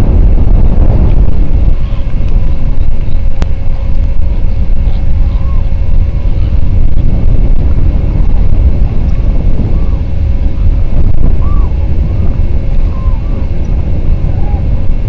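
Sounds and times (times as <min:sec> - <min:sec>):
wind buffeting microphone: 0:00.0 - 0:15.0
faint waterbird calls: 0:11.4 - 0:11.8.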